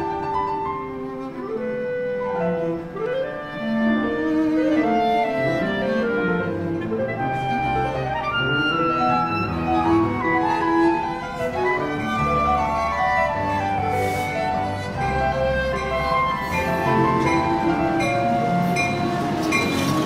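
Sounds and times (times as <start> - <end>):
chamber music clarinet cello piano: 0.0 - 20.0.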